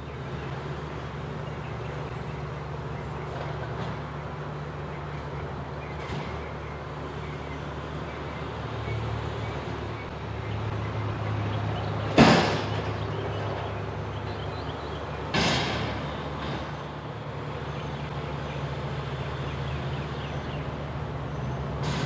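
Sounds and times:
diesel engine revving: 0.0 - 22.0
loud metallic bang: 12.1 - 13.0, 15.3 - 16.8.

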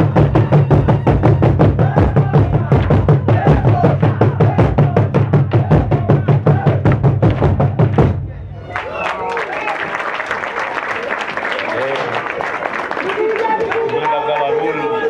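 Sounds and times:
fast drum beat: 0.0 - 8.3.

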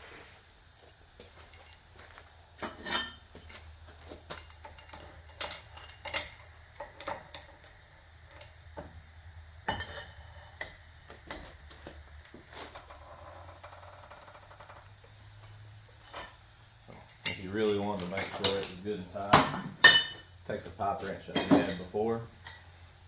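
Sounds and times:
metal tools clinking and clanking: 2.6 - 3.6, 4.2 - 7.7, 16.1 - 19.0, 19.8 - 20.3.

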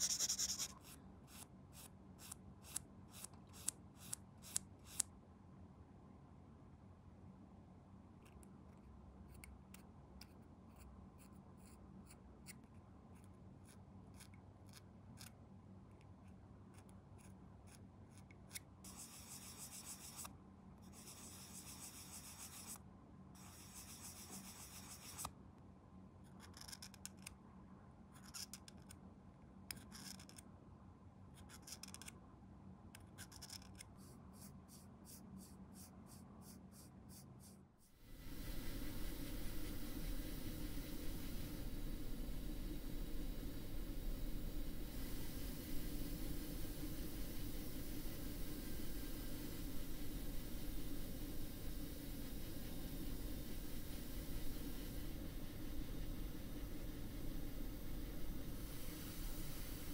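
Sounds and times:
rasping strokes: 0.0 - 5.0.

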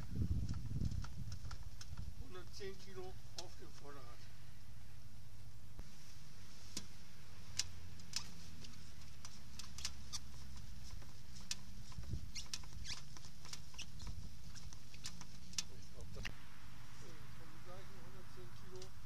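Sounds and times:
suspension spring squeaks and clicks: 7.5 - 16.0.

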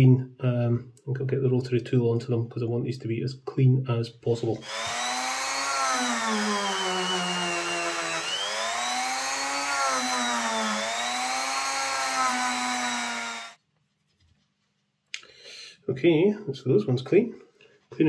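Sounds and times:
rotary tool motor whine: 4.6 - 13.6.

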